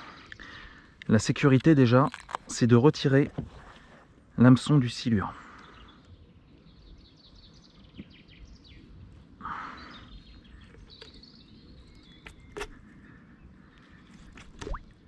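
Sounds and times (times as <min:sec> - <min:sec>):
faint birds chirping: 0:00.0 - 0:15.0
water splash: 0:14.5 - 0:15.0.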